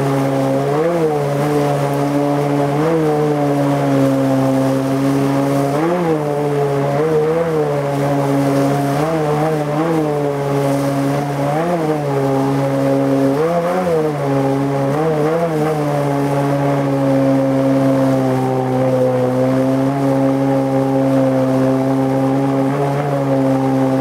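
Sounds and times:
outboard engine running under load: 0.0s - 24.0s.

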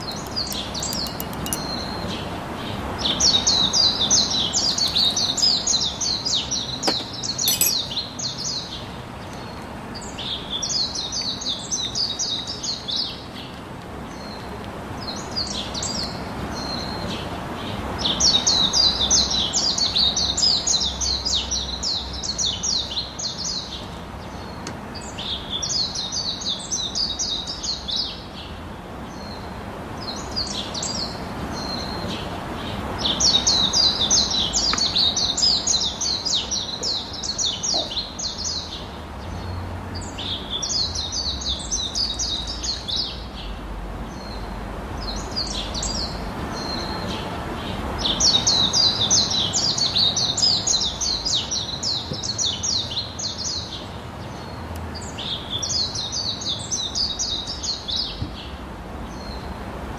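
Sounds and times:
songbird chirping: 0.0s - 14.5s, 30.1s - 59.5s
faint steady background noise: 0.0s - 59.9s.

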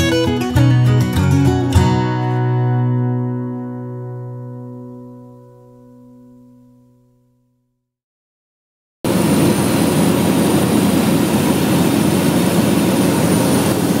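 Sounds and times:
plane engine and propeller drone: 9.1s - 14.0s.

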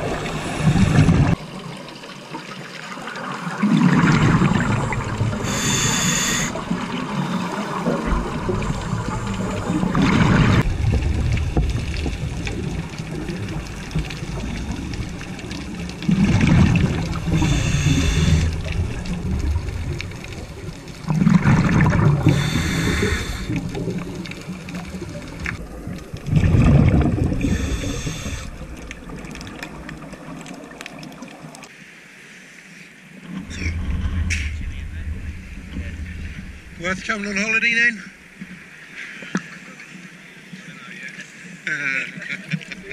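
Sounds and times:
quiet hissing: 4.6s - 41.7s
regulator exhaust bubbling underwater: 6.5s - 30.8s.

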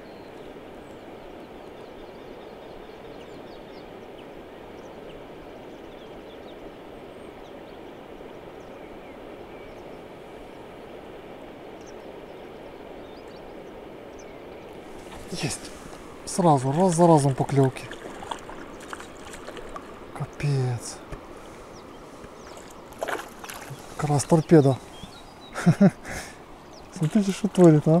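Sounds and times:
faint bird chirps: 11.8s - 27.6s.

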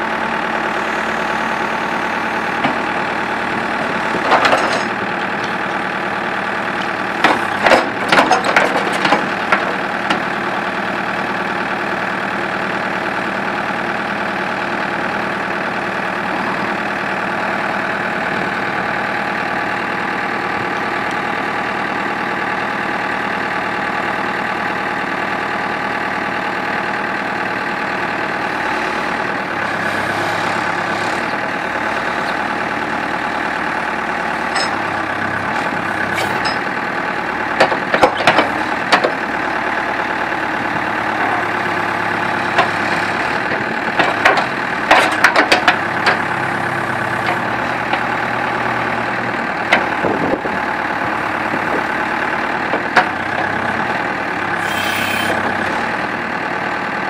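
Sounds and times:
diesel engine running: 0.0s - 57.0s
sharp metal clanks: 34.5s - 34.8s.

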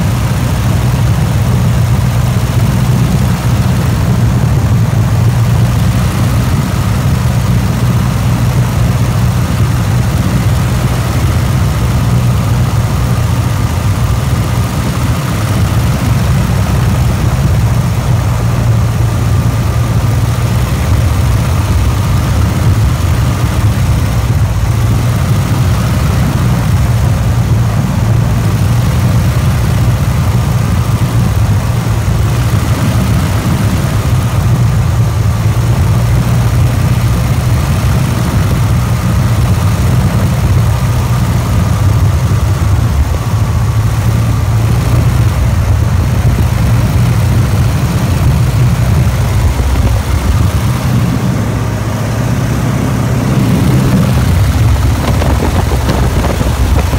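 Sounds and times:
propeller plane engine droning: 0.0s - 56.9s
wind rushing: 48.5s - 56.9s.

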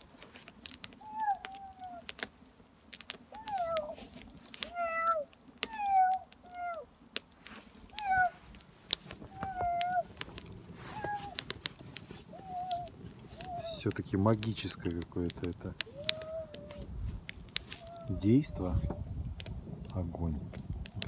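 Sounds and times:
wood fire crackling: 0.0s - 21.0s
cat meowing: 1.0s - 2.1s, 3.3s - 6.9s, 7.9s - 8.4s, 9.2s - 10.2s, 10.8s - 11.6s, 12.2s - 13.9s, 15.8s - 16.9s, 17.6s - 19.0s.

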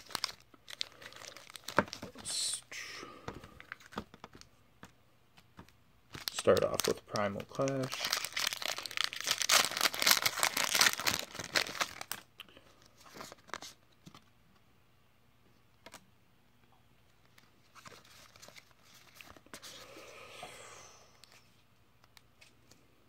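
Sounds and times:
foil wrapper tearing and crinkling: 0.0s - 2.2s, 6.1s - 12.3s
cards rustling: 0.0s - 2.4s, 3.3s - 14.3s, 17.2s - 19.8s.

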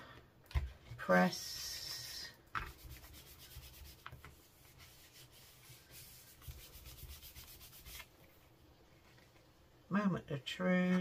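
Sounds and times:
hand rubbing card: 1.8s - 8.1s.

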